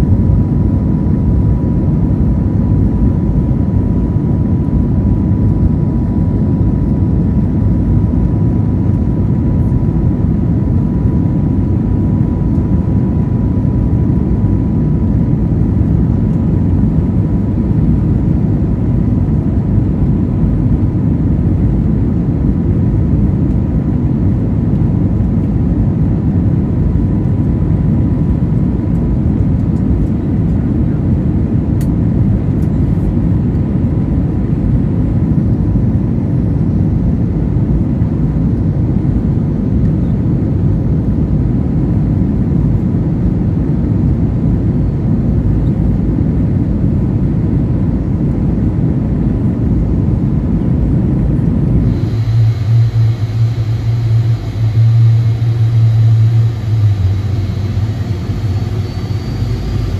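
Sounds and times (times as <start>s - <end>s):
high engine whine: 0.0s - 59.9s
jet engine rush in cabin: 0.0s - 59.9s.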